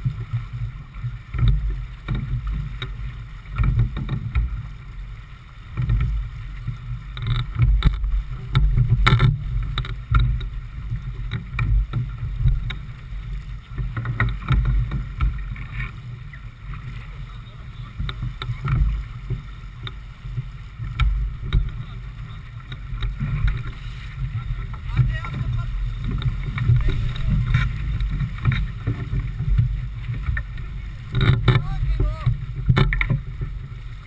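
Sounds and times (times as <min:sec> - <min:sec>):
water hissing along hull: 0:00.0 - 0:34.0
wind buffeting microphone: 0:07.0 - 0:34.0.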